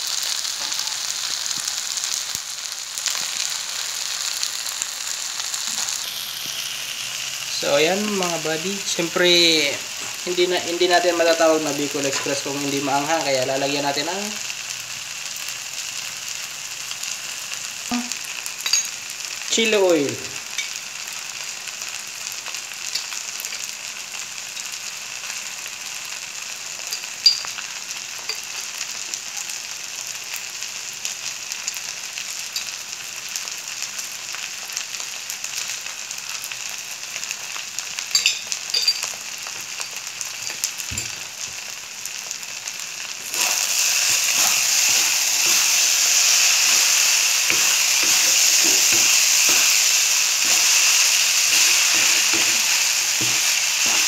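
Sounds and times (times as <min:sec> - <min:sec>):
rice sizzling in a wok: 0:00.0 - 0:54.0
wooden spatula scraping a pan: 0:43.2 - 0:54.0.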